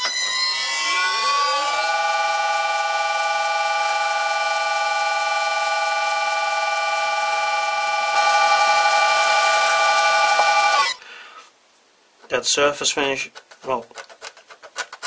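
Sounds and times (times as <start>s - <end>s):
metal lathe whine: 0.0s - 11.0s.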